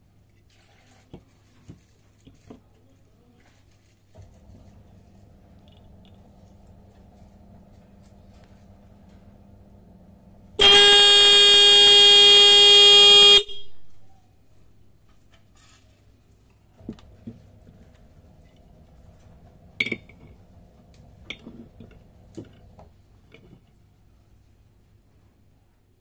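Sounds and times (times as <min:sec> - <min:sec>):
car horn blast: 0:10.5 - 0:13.9.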